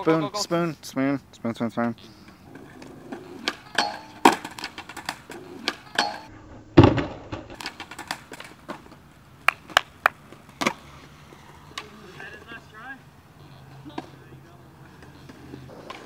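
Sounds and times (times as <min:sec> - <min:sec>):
skateboard clattering on metal rail: 0:02.5 - 0:08.9
skateboard clacks: 0:02.5 - 0:12.6, 0:13.7 - 0:16.0
heavy slam on concrete: 0:06.8 - 0:07.6.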